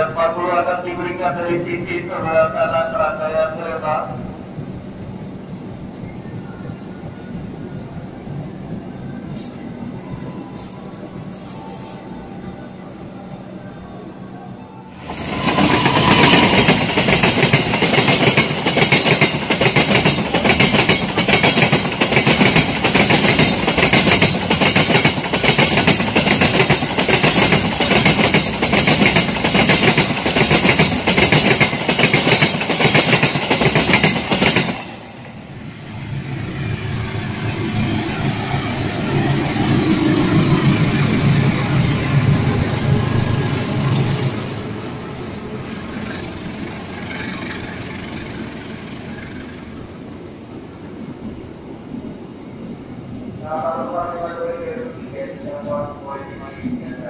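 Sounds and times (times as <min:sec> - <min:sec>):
train wheels clacking over rails: 0:15.0 - 0:35.0, 0:45.5 - 0:50.0
locomotive engine rumbling: 0:33.8 - 0:50.2.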